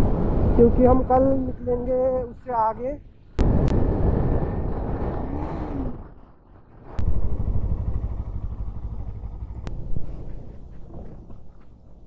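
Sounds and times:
wind rumble on microphone: 0.0 - 12.0
motorcycle engine revving: 7.0 - 11.6.

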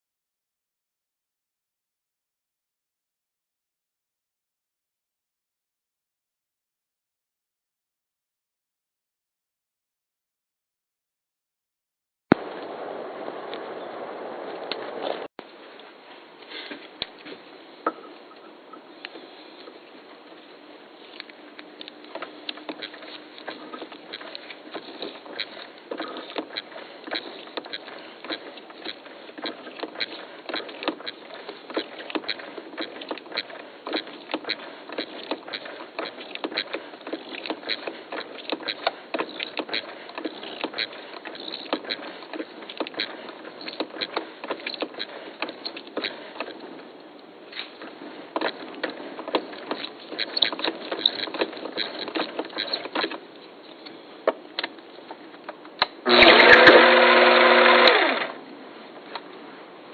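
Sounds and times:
lathe motor whine: 56.1 - 58.4.

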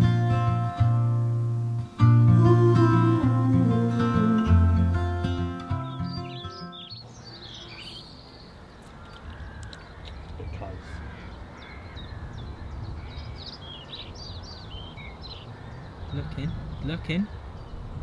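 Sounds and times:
birds chirping: 3.9 - 18.0.

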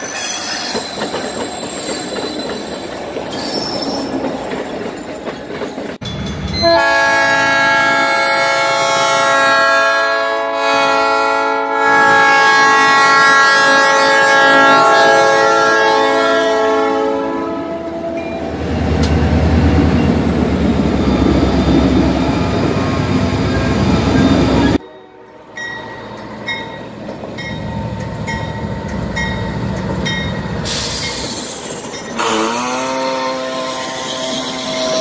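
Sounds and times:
locomotive rolling through crossing: 0.0 - 9.2, 12.8 - 35.0
crossing bell ringing: 6.0 - 7.5, 17.5 - 32.6
diesel locomotive engine rumble: 12.7 - 32.4.

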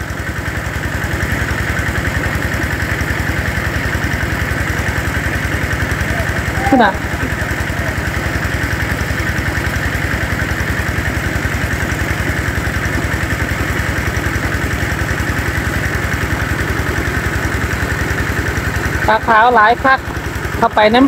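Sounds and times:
engine-driven water pump throbbing: 0.0 - 21.0.

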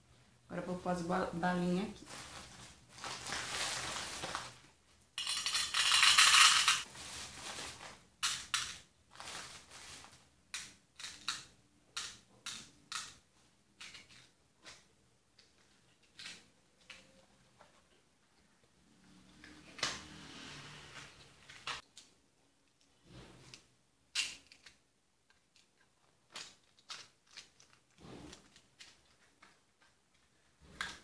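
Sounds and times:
plastic bag rustling and crinkling: 1.6 - 10.4
candies clicking into container: 5.2 - 6.8, 10.5 - 13.2.

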